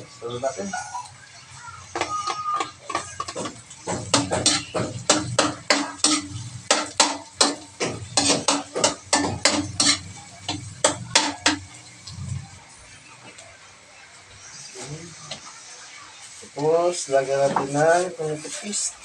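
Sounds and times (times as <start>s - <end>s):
metal spatula scraping a steel wok: 1.9s - 12.5s.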